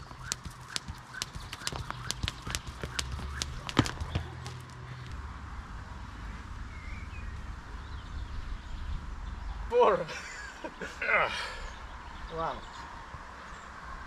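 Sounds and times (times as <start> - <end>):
jump rope slapping rubber floor: 0.0 - 4.7.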